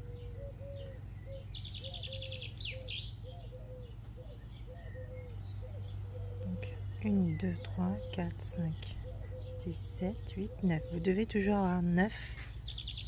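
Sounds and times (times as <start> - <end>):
birds singing: 0.0 - 13.0.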